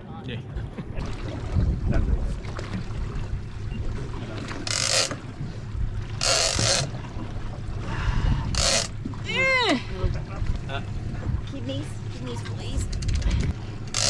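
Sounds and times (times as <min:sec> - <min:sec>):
low boat rumble: 0:00.0 - 0:14.0
wind noise on microphone: 0:00.6 - 0:02.4, 0:12.7 - 0:13.6.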